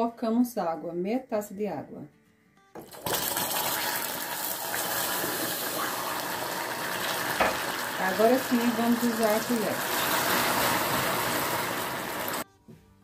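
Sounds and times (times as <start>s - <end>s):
water hissing and bubbling in pan: 2.8s - 12.4s.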